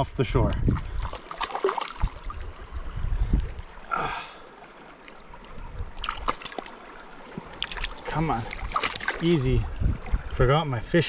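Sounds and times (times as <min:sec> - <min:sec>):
fish flopping in grass: 0:06.0 - 0:06.8, 0:07.4 - 0:09.3.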